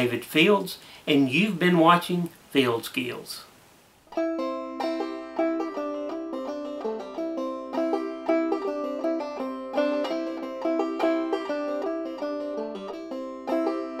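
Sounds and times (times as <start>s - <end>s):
plucked string instrument tune: 4.1s - 14.0s.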